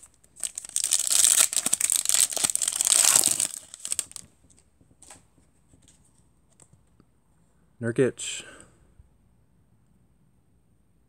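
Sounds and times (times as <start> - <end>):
foil pack crinkling: 0.0 - 4.3.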